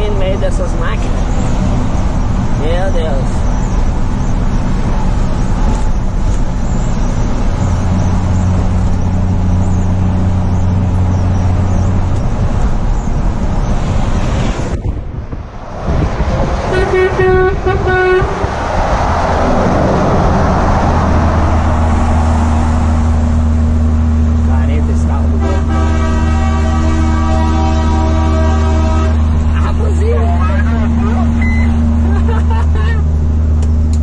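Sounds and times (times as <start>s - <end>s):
truck engine droning: 0.0s - 34.0s
vehicle horn toots: 16.6s - 18.6s, 25.3s - 29.3s.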